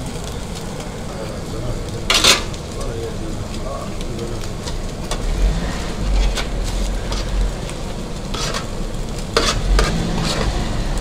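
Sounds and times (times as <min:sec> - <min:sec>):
meat sizzling in a pan: 0:00.0 - 0:11.0
metal utensil scraping and clinking: 0:02.1 - 0:02.6, 0:04.6 - 0:10.8.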